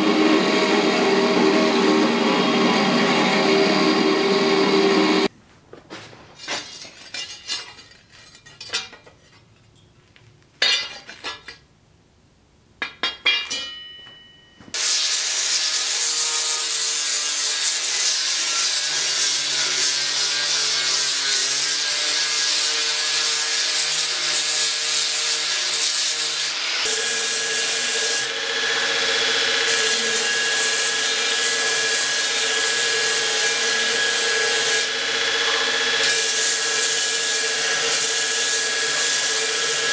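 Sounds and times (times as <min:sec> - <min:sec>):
angle grinder grinding steel: 0:00.0 - 0:05.3, 0:14.8 - 0:39.9
belt grinder humming: 0:00.0 - 0:05.3
faint taps and clinks: 0:13.5 - 0:14.7.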